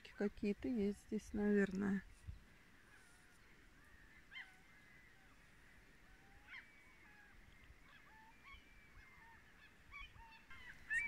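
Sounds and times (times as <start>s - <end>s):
faint gull calls: 3.8s - 5.4s, 6.1s - 11.0s.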